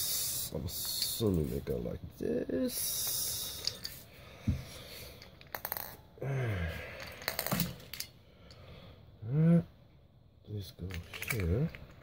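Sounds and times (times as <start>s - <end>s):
batteries clicking and clinking: 10.8s - 12.0s.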